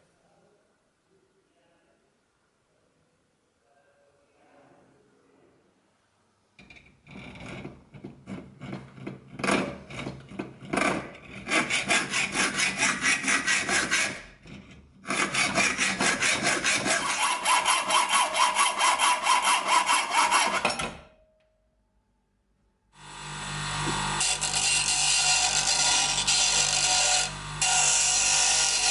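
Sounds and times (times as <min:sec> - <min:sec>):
hacksaw cutting metal: 0:09.4 - 0:21.0, 0:23.1 - 0:28.9
bench grinder humming: 0:23.0 - 0:28.9.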